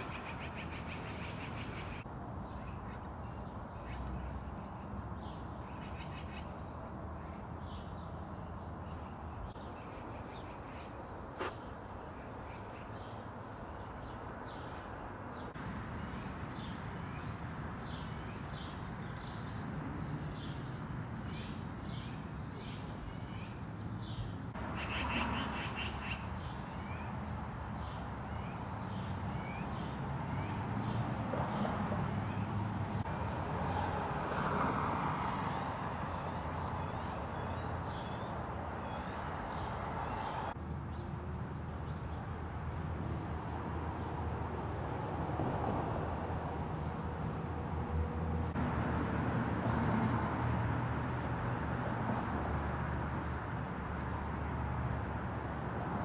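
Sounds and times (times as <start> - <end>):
small birds chirping: 0.0 - 33.4
distant traffic rumble: 0.0 - 56.0.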